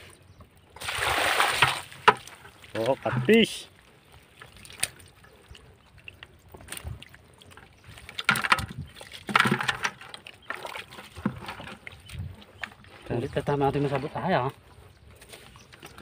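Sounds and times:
water and mud sloshing: 0.0s - 16.0s
fishing net rustling: 0.8s - 5.2s, 6.0s - 16.0s
splashes: 0.8s - 13.2s.

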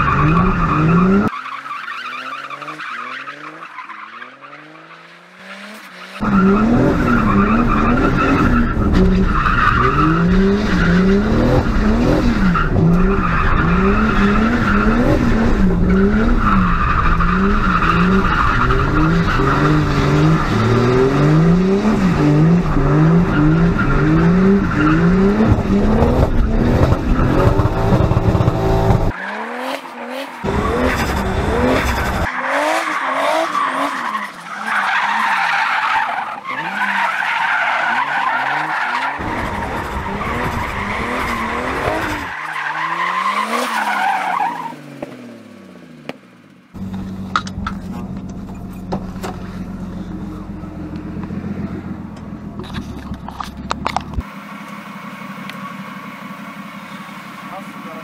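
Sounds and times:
tyres skidding and squealing: 0.0s - 58.0s
car engine revving: 2.0s - 46.1s.

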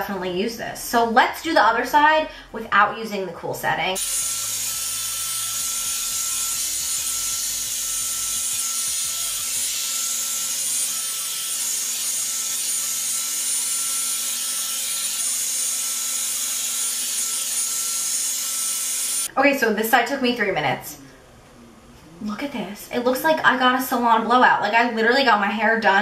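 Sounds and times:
hair dryer running: 4.0s - 19.3s.

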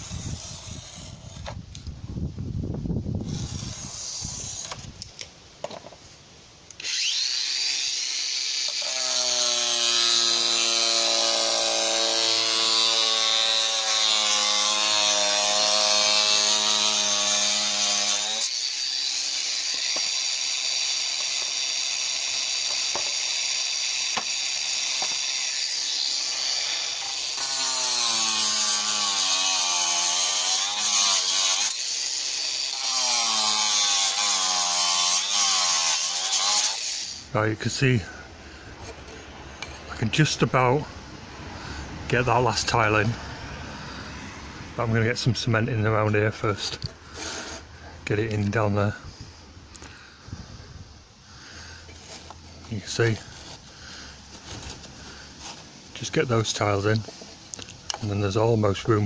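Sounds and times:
angle grinder cutting stone: 0.0s - 1.6s, 3.2s - 5.0s, 6.8s - 37.7s, 45.7s - 48.7s.

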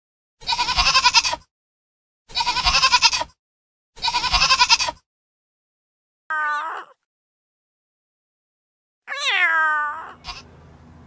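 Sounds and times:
goat bleating: 0.4s - 1.4s, 2.3s - 3.3s, 4.0s - 5.0s, 9.1s - 10.5s.

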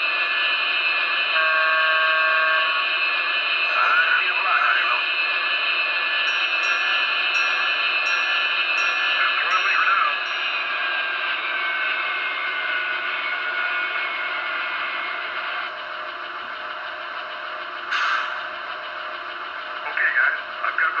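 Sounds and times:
model locomotive turbine whine: 0.0s - 21.0s.

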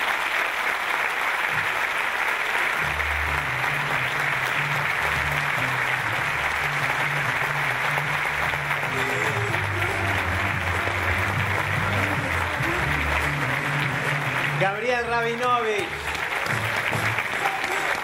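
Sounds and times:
audience applauding: 0.0s - 18.0s
background music with bass line: 2.8s - 15.3s.

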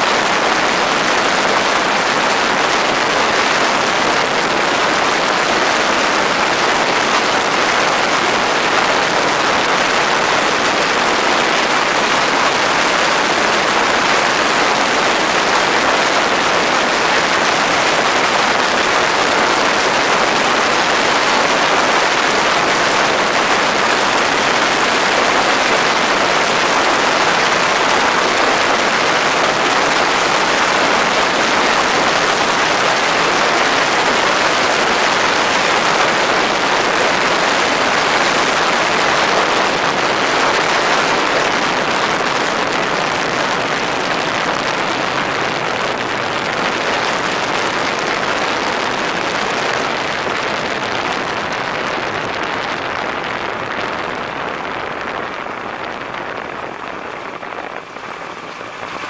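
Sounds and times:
microlight engine and propeller running: 52.8s - 59.0s.

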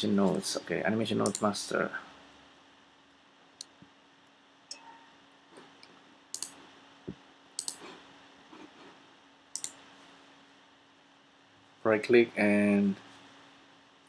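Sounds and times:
faint steady hum: 0.0s - 14.0s
computer mouse clicks: 1.2s - 1.5s, 5.8s - 6.6s, 7.6s - 7.9s, 9.5s - 9.8s.

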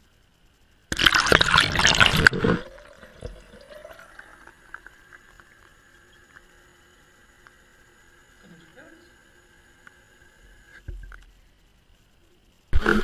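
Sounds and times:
water splashing into a bowl: 0.9s - 4.9s
water dripping: 0.9s - 6.6s.

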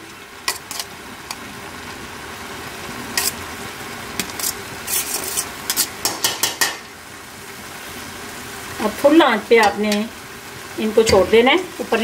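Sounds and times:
syrup boiling and bubbling: 0.0s - 10.9s.

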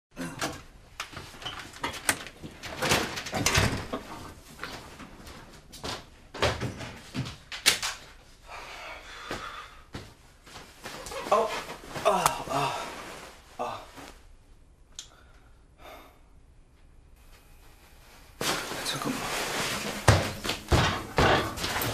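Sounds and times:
rustling: 10.4s - 14.4s, 17.2s - 21.9s.

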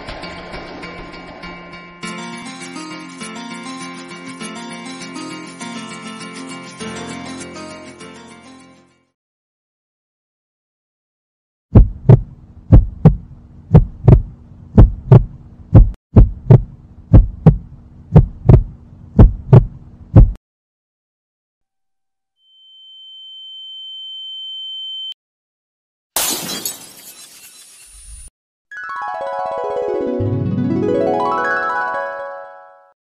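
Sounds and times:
heartbeat thumps: 11.7s - 20.4s.

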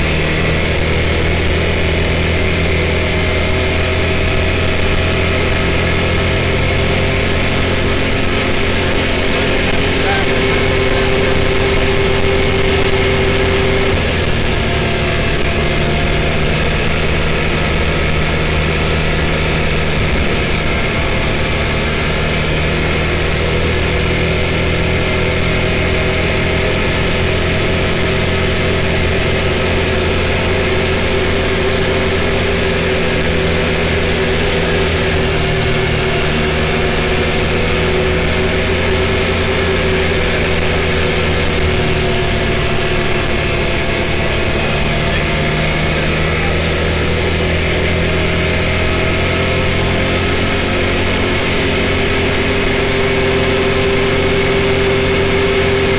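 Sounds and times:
engine running at cruising speed: 0.0s - 55.9s
road and wind noise: 0.0s - 55.9s.

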